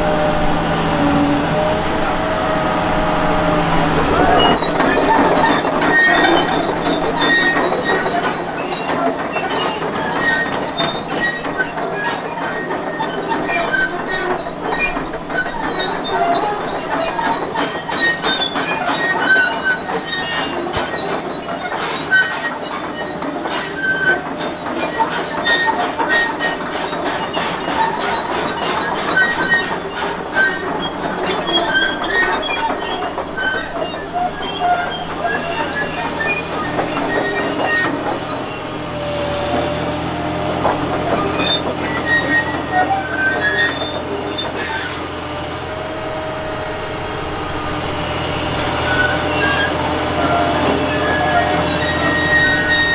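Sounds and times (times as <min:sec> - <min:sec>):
diesel engine running: 0:00.0 - 0:52.9
excavator tracks squealing and clanking: 0:00.0 - 0:52.9.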